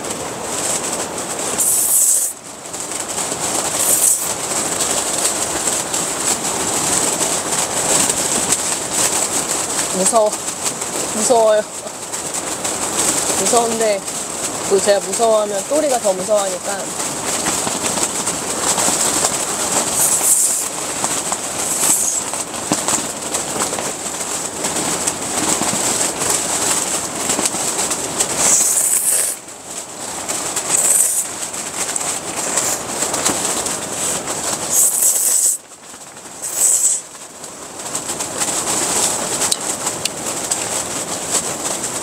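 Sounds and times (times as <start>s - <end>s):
gale buffeting a tent: 0.0s - 42.0s.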